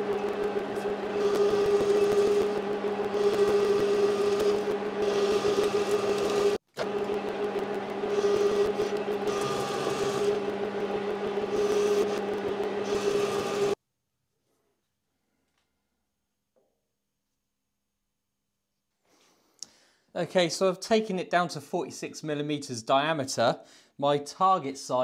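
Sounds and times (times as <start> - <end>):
lathe motor whine: 0.0 - 13.8.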